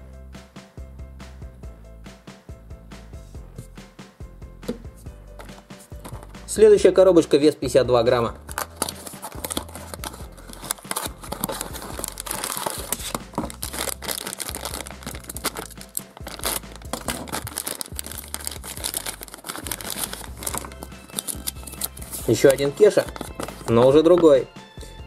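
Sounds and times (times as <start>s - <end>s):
faint background music: 0.0s - 25.0s
packaging crinkling and tearing: 8.5s - 23.9s.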